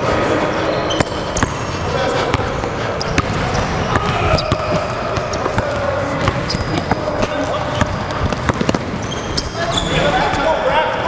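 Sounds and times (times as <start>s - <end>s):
sneakers squeaking: 0.0s - 10.6s
basketball dribbling on hardwood: 4.4s - 9.0s.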